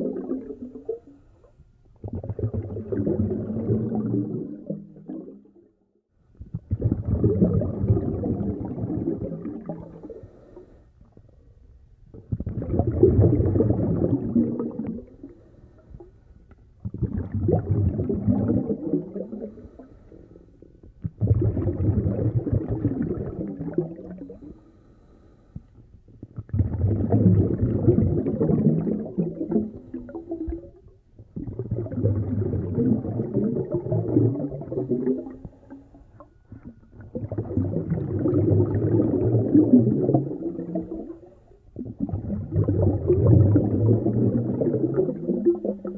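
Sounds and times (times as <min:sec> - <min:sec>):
muffled snorkel breathing: 0:09.8 - 0:11.5, 0:15.0 - 0:16.5, 0:19.2 - 0:20.9, 0:24.2 - 0:26.0, 0:29.4 - 0:30.3.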